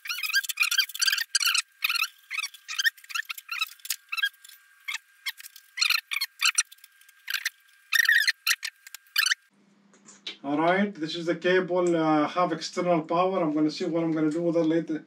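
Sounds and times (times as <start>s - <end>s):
high squeaky scrapes: 0.0s - 9.5s.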